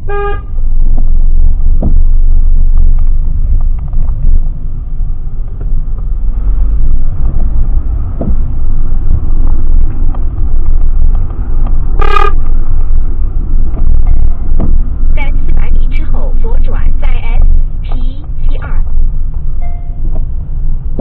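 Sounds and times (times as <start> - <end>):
short horn toot: 0.0 - 0.5, 12.0 - 12.4
loud low rumble: 0.0 - 21.0.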